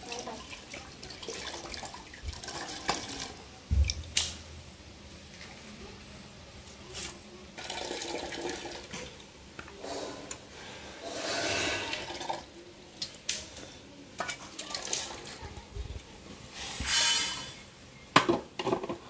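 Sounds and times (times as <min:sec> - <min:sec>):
liquid trickling and splashing into pot: 0:00.0 - 0:04.4, 0:07.6 - 0:09.3, 0:11.3 - 0:15.4.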